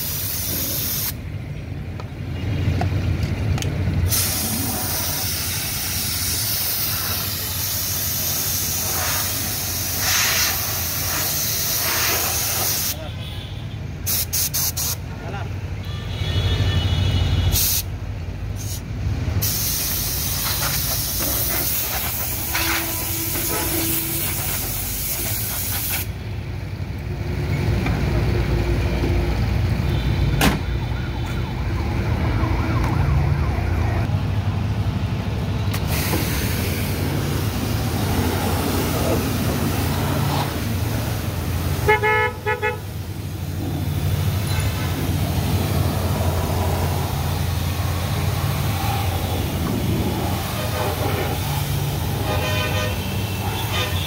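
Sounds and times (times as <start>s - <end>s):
hose spraying water: 0.0s - 1.2s, 4.1s - 13.0s, 19.4s - 26.2s, 35.7s - 54.0s
traffic rumble: 0.0s - 54.0s
vehicle horn toot: 13.0s - 13.8s, 15.8s - 17.7s, 22.5s - 24.5s, 41.8s - 42.9s, 52.2s - 54.0s.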